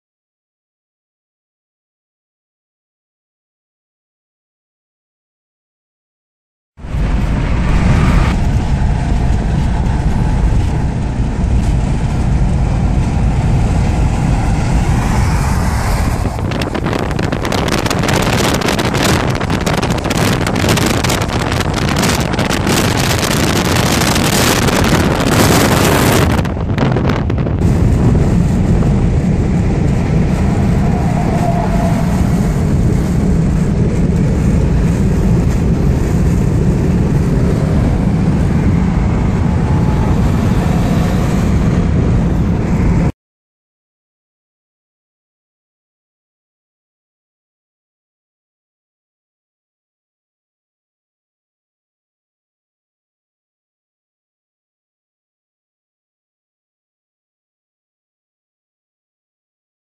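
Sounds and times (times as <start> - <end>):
deep rumble of passing truck: 6.8 - 43.1
wind gusting on microphone: 6.8 - 43.1
car road and engine noise: 6.8 - 43.2.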